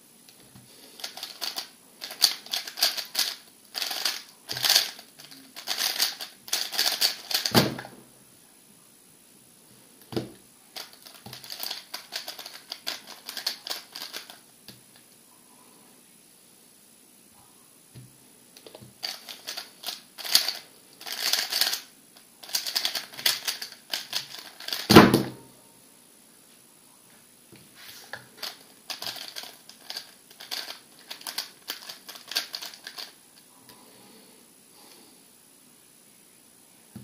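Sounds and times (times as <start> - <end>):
puzzle cube plastic clicking: 1.0 - 7.5, 28.4 - 33.1.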